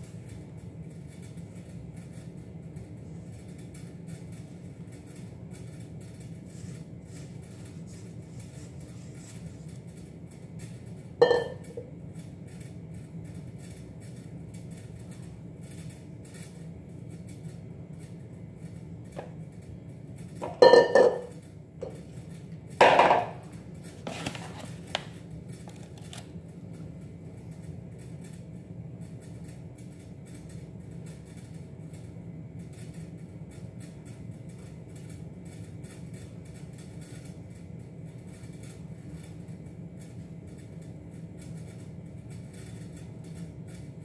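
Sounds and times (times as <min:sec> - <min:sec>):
steady low hum: 0:00.0 - 0:44.0
metal bowl clanking on countertop: 0:11.2 - 0:11.8, 0:20.4 - 0:22.0, 0:22.8 - 0:23.4.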